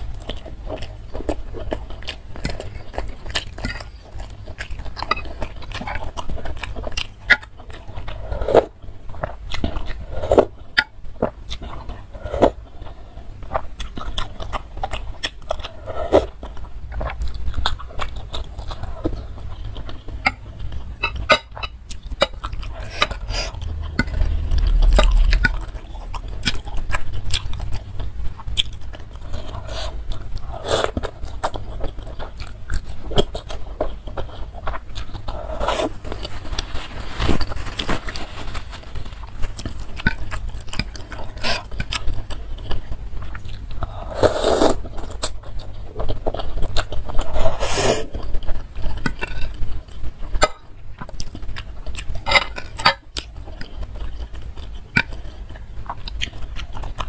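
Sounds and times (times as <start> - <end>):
chewing: 0.0 - 57.0
dull low bump: 23.4 - 26.7
slurping noodles: 29.4 - 31.1, 35.3 - 36.2, 43.9 - 44.8, 47.2 - 48.2.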